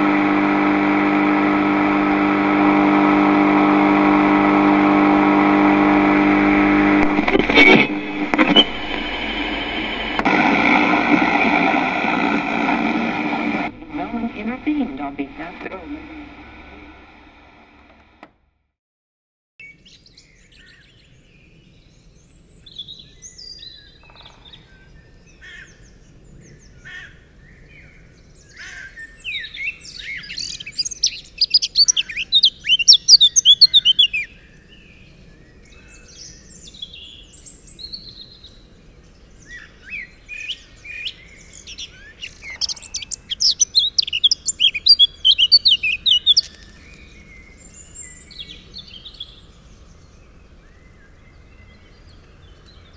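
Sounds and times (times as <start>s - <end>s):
rapid trilling birdsong: 28.5s - 52.9s
birds chirping: 39.6s - 52.9s.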